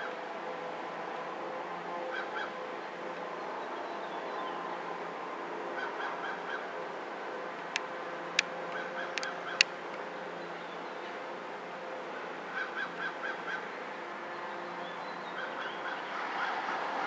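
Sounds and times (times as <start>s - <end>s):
steady outdoor hum: 0.0s - 17.0s
sharp clicks: 9.2s - 9.7s.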